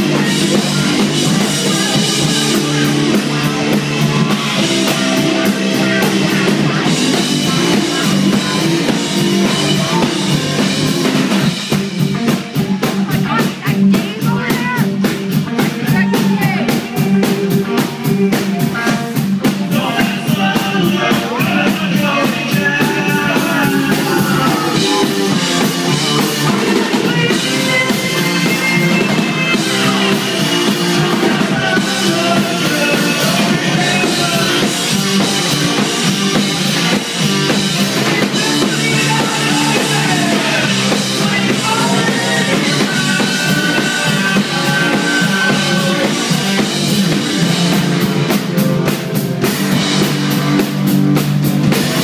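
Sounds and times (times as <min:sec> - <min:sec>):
drum kit: 0:00.0 - 0:52.0
electric guitars: 0:00.0 - 0:52.0
woman singing: 0:26.3 - 0:35.2, 0:38.1 - 0:46.6.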